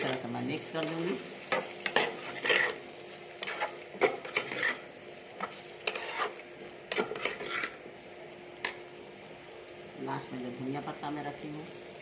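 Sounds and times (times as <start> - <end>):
metal spatula scraping metal pan: 1.5 - 2.8, 3.4 - 7.8.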